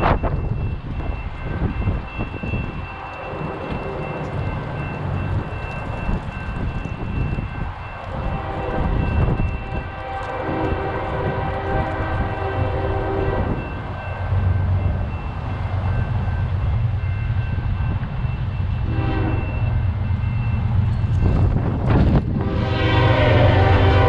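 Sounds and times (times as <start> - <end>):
diesel locomotive rumbling: 0.0 - 24.0
train air horn blasts: 8.1 - 13.7, 18.8 - 19.8, 22.3 - 24.0.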